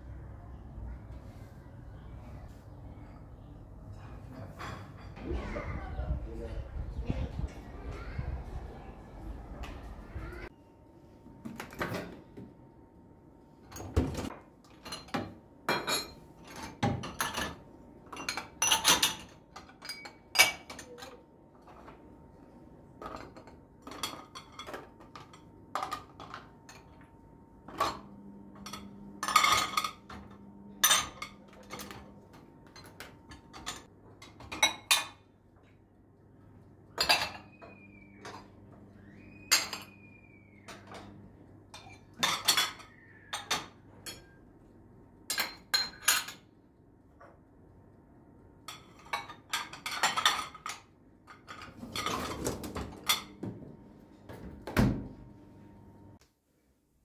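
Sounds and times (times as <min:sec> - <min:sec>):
glasses and plates clinking: 0:03.9 - 0:05.2, 0:14.7 - 0:21.2, 0:23.0 - 0:27.0, 0:27.7 - 0:35.2, 0:37.0 - 0:38.6, 0:39.3 - 0:44.4, 0:45.3 - 0:46.4, 0:48.7 - 0:53.5.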